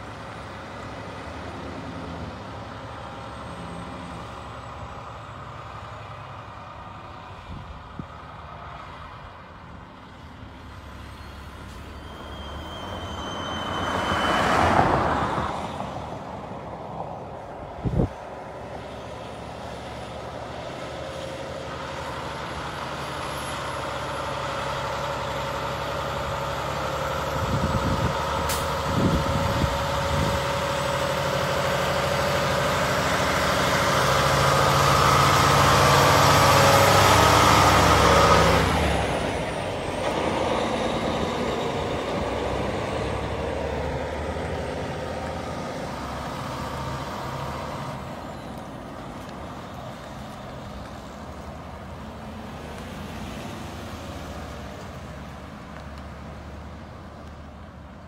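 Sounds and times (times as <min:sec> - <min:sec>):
truck diesel engine passing: 0:00.0 - 0:58.0.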